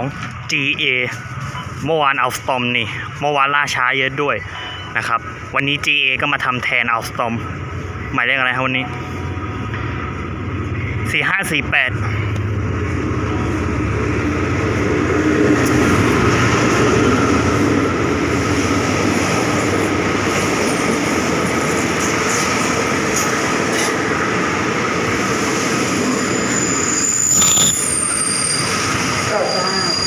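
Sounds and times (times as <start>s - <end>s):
diesel locomotive passing: 0.0s - 30.0s
train wheels rumbling on rails: 8.8s - 30.0s.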